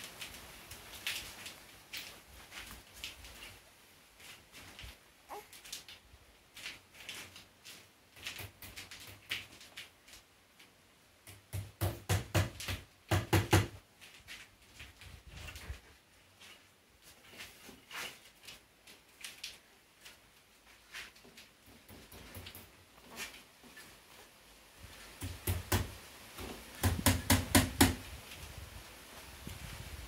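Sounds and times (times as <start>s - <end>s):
hammer tapping nails into wood: 11.2s - 13.8s, 25.2s - 26.0s, 26.8s - 28.0s.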